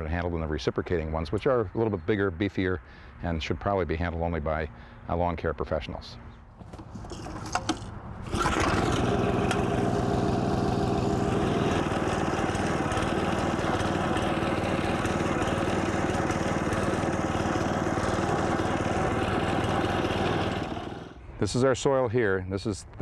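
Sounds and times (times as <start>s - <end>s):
small petrol engine running: 8.2s - 21.2s.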